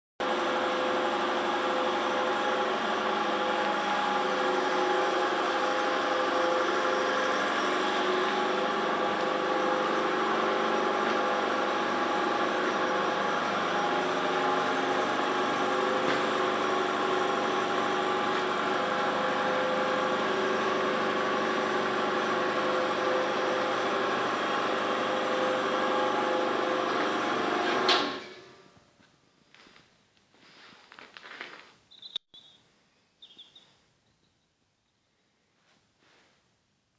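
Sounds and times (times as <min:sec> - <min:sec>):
motor running steadily: 0:00.2 - 0:28.1.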